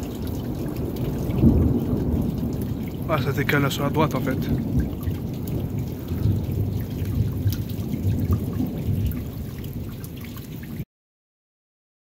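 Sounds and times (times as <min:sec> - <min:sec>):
thunder rumbling: 0:00.0 - 0:10.8
rain dripping: 0:00.0 - 0:10.9.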